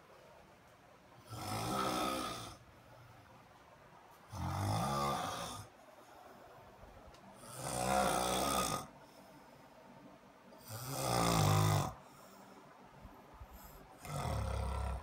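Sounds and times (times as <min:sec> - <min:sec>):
man snoring: 0:01.2 - 0:02.6, 0:04.3 - 0:05.7, 0:07.4 - 0:09.0, 0:10.6 - 0:12.0, 0:14.0 - 0:15.0.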